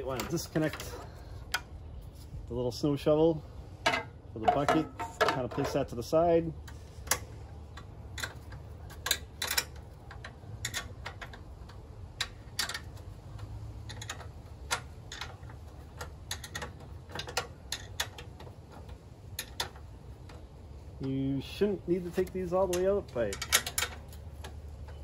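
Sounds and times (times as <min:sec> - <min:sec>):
wrench clicking on bolts: 0:06.6 - 0:20.5, 0:22.2 - 0:25.0.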